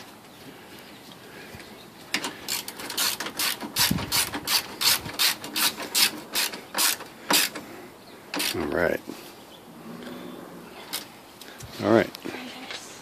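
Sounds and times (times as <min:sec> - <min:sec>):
ratchet wrench clicking: 0:02.2 - 0:07.6.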